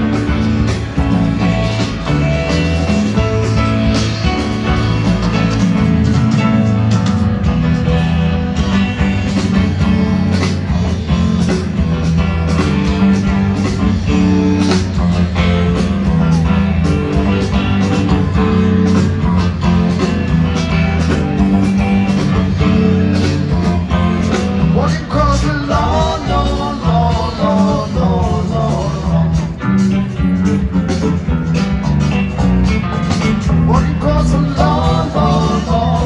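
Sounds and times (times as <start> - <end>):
live rock band playing: 0.0 - 36.0.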